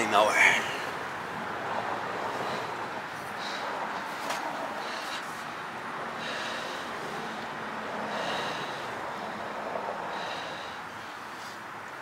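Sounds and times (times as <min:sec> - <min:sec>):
person breathing hard: 0:02.1 - 0:11.8.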